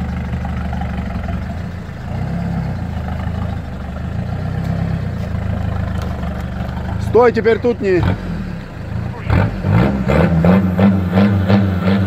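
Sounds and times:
engine running at low revs: 0:00.0 - 0:12.0.

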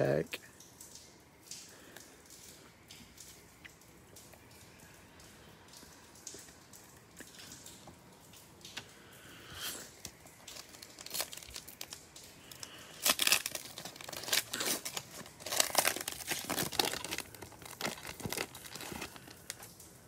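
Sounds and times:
foil wrapper crinkling: 0:09.6 - 0:19.8.

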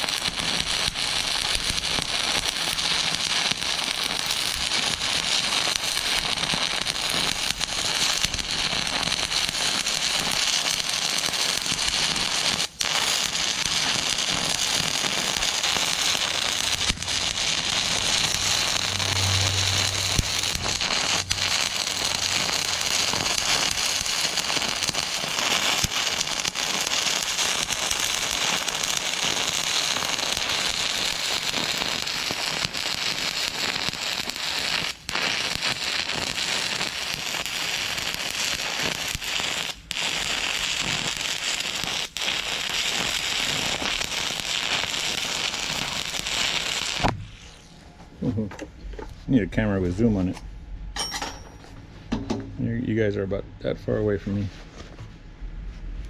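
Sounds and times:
welding arc crackling: 0:00.0 - 0:48.4.

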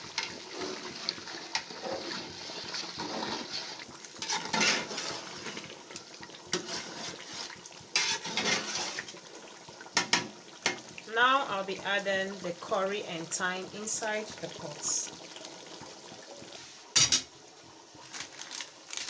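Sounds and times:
stew bubbling: 0:00.0 - 0:18.2
spoon scraping metal pot: 0:03.0 - 0:05.3, 0:06.5 - 0:09.1.

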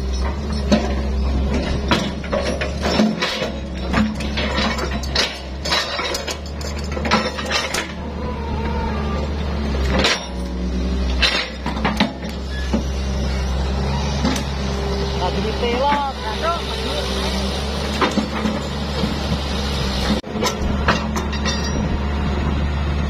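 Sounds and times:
logs clanking against metal bucket: 0:00.0 - 0:08.1, 0:11.1 - 0:12.4
diesel engine running: 0:00.0 - 0:23.0.

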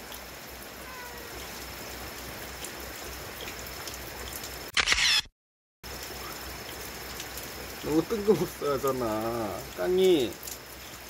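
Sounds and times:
rain hiss: 0:00.0 - 0:04.7, 0:05.8 - 0:11.0
camera shutter click: 0:04.7 - 0:05.3.

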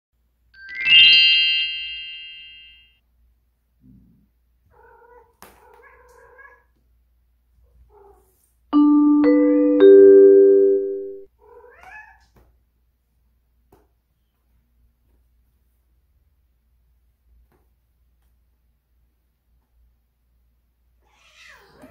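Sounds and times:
ringing chime notes: 0:00.6 - 0:02.9, 0:08.8 - 0:11.3
faint cat meows: 0:04.7 - 0:06.8, 0:11.4 - 0:12.4, 0:21.0 - 0:21.9.

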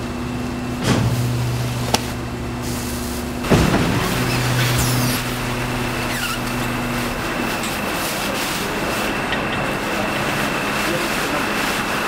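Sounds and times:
constant machine noise: 0:00.0 - 0:12.0
garbage truck engine hum: 0:00.0 - 0:12.0.

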